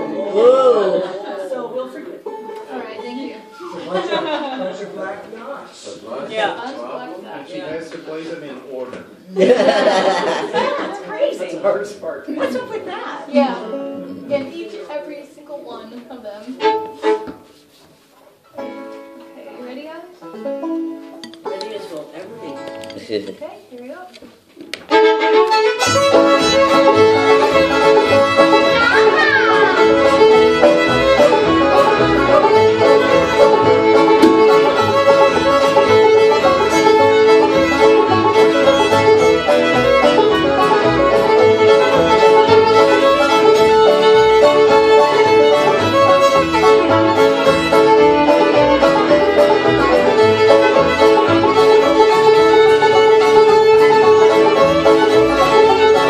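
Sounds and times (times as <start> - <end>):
fiddle: 15.4 - 17.8, 20.2 - 23.0, 24.7 - 56.0
strummed acoustic guitar: 25.8 - 56.0
upright bass: 25.8 - 56.0.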